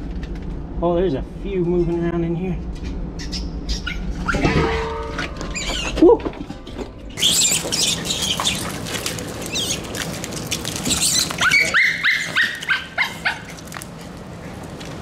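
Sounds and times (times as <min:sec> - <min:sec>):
rat squealing: 0:02.8 - 0:04.8, 0:05.5 - 0:06.0, 0:07.2 - 0:08.8, 0:09.4 - 0:10.0, 0:10.8 - 0:13.6
scrabbling on pavement: 0:04.2 - 0:15.0.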